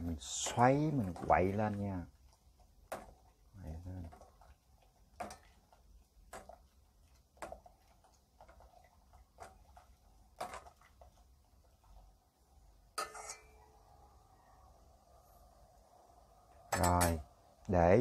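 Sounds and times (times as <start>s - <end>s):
ladle clinking against metal pot: 13.0s - 13.7s.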